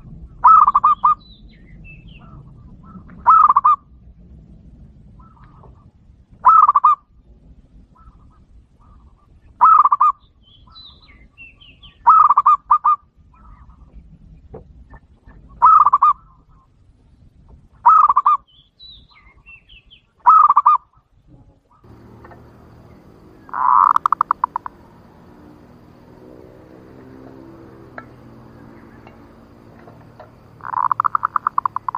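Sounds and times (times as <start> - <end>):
dove cooing: 3.2 - 3.8, 21.9 - 31.9
small birds chirping: 8.0 - 12.6, 17.9 - 20.8, 21.7 - 31.9.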